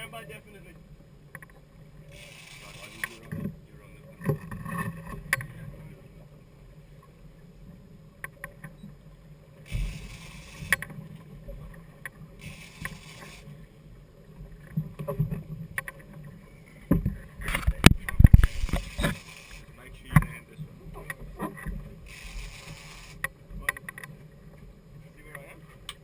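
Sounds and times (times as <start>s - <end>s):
outboard motors running: 0.0s - 26.0s
short bursts of hiss: 12.4s - 13.4s, 22.1s - 23.2s
sharp clicks: 12.4s - 13.5s.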